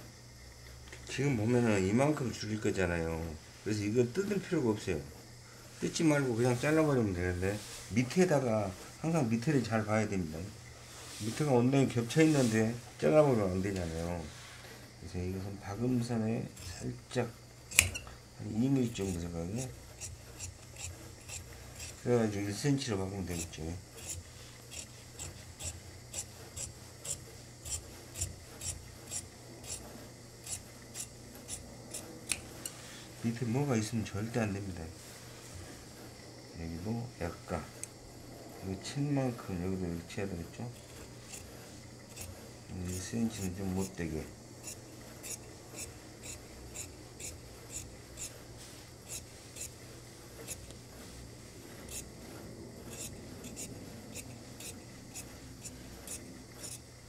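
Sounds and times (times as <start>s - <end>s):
shears snipping fabric: 15.8s - 32.8s, 40.3s - 56.9s.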